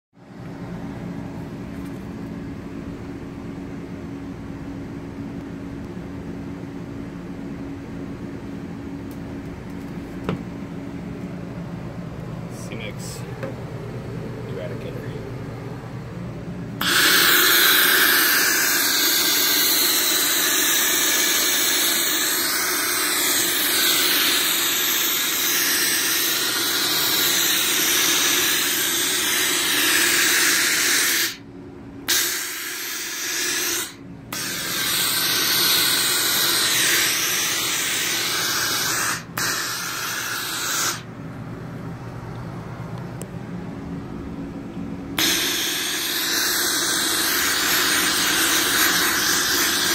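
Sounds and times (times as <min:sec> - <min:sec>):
steam nozzle hissing: 0:16.8 - 0:31.4, 0:32.1 - 0:41.1, 0:45.2 - 0:49.9.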